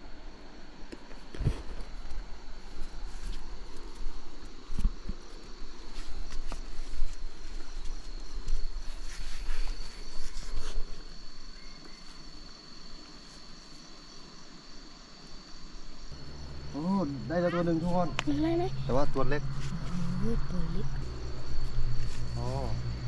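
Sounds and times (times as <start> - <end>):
high-pitched insect chorus: 0.0 - 23.0
rustling: 1.1 - 12.4, 19.4 - 23.0.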